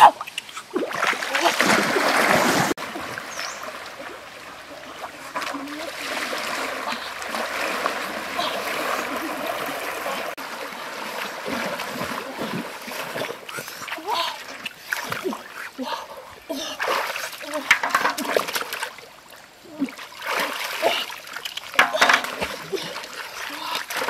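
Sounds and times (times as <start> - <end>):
person wading through water: 0.0 - 24.0
loud water splash: 0.7 - 4.2.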